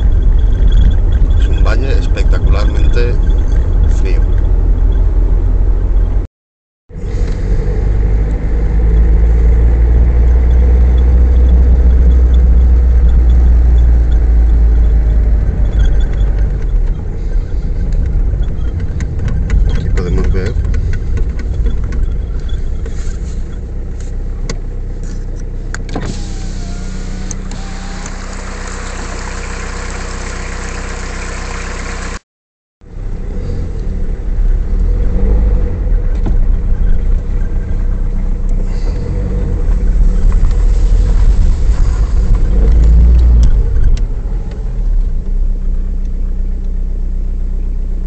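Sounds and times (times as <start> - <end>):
engine and tyre rumble: 0.0 - 6.3, 6.9 - 32.2, 32.8 - 48.0
knocks and rattles: 13.0 - 23.6.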